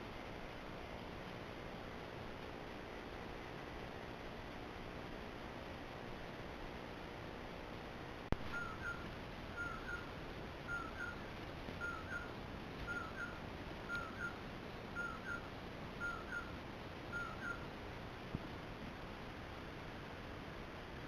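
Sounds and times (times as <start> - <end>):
bird singing two-part call: 8.5 - 10.1, 10.7 - 11.2, 11.8 - 14.4, 15.0 - 16.5, 17.1 - 17.6.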